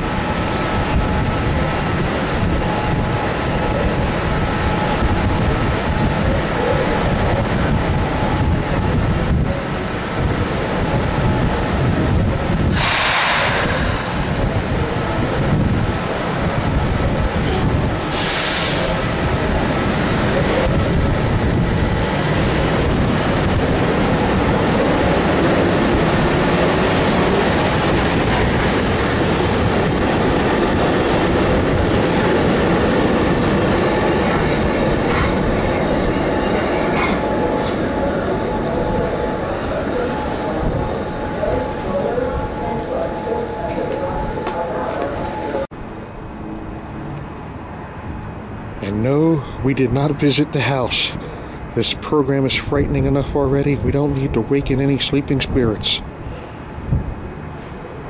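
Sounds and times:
train wheels rumbling on rail: 0.0 - 48.7
brief high hisses: 12.7 - 14.2.

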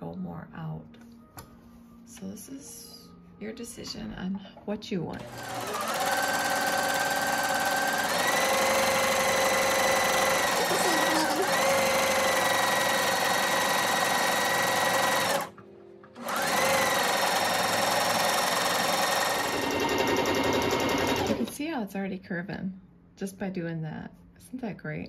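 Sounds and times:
sewing machine motor whine: 5.2 - 15.5, 16.2 - 21.5.

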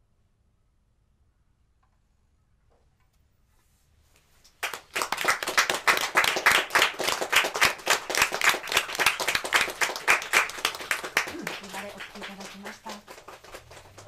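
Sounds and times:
audience applause: 4.6 - 14.0.

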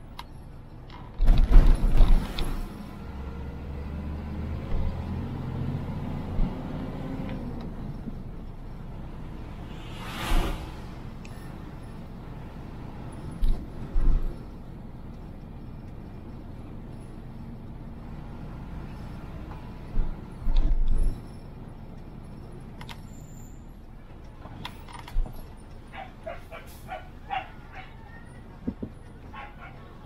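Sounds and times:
vehicle rumbling on road: 0.0 - 30.0
dog barking: 25.9 - 28.2, 29.3 - 30.0.

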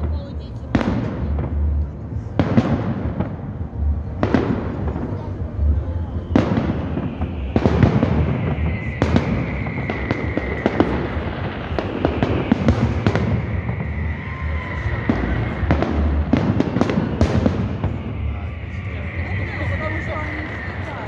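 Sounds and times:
steady background din: 0.0 - 21.0.

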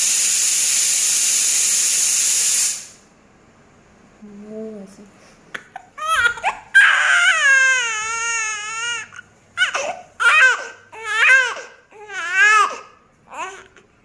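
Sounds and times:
newborn baby crying: 5.5 - 13.9.

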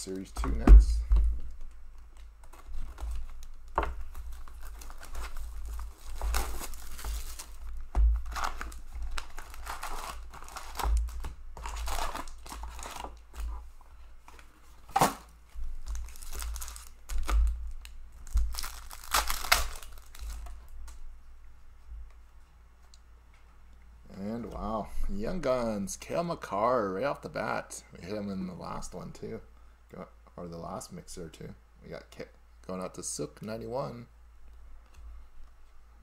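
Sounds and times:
cardboard and foil ripping: 4.0 - 7.6, 8.2 - 13.2, 14.9 - 17.4, 18.2 - 20.4.

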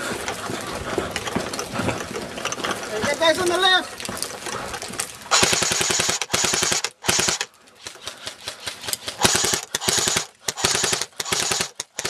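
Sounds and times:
airsoft rifle full-auto bursts: 5.3 - 12.0
scattered airsoft shots: 5.3 - 12.0.

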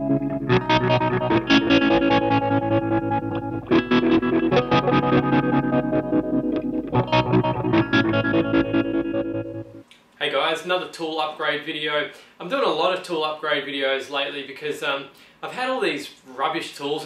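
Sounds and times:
distorted electric guitar: 0.0 - 9.8.

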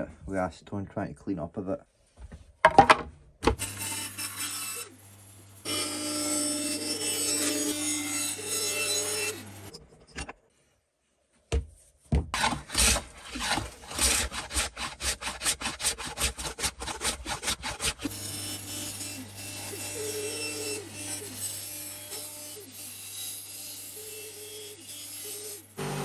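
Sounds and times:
bandsaw humming: 3.6 - 9.8, 12.4 - 26.0
steel rasping by hand: 12.4 - 26.0.

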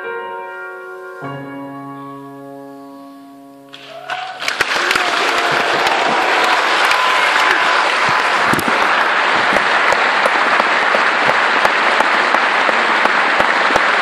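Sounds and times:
audience applauding: 3.7 - 14.0.

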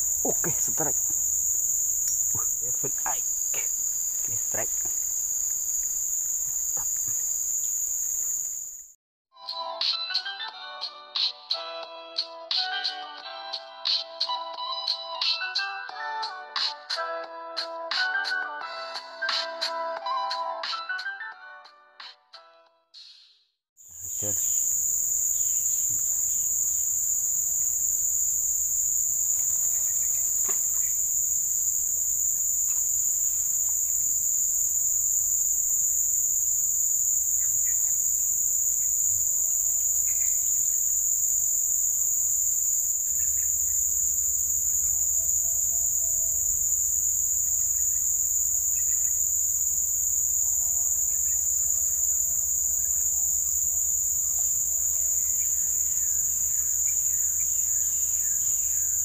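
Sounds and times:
insects droning: 0.0 - 8.9, 23.8 - 59.0.

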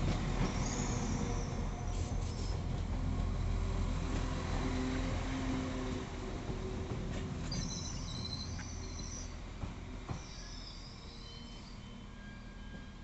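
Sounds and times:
train engine rumble: 0.0 - 13.0
high squeal of train wheels: 0.4 - 2.8, 7.2 - 13.0.

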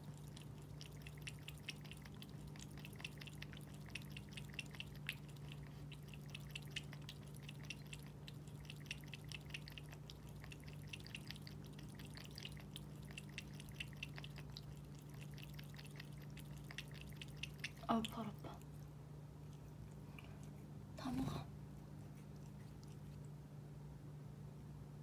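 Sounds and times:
cat lapping water: 0.0 - 23.4
low steady hum: 0.0 - 25.0.

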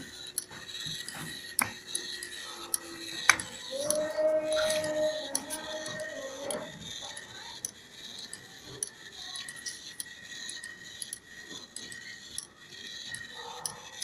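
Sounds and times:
plastic legs ticking and rattling: 0.0 - 14.0
toy gear motor whining: 0.0 - 14.0.

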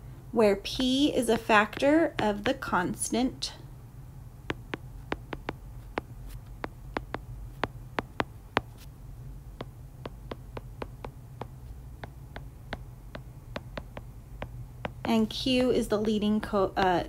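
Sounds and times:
low steady hum: 0.0 - 17.0
stylus tapping on glass screen: 4.5 - 8.9, 9.6 - 15.2.

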